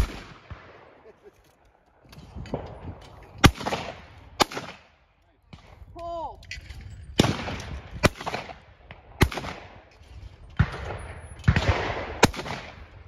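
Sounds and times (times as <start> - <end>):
shotgun shots: 0.0 - 0.9, 3.4 - 4.9, 7.2 - 9.9, 10.6 - 13.0.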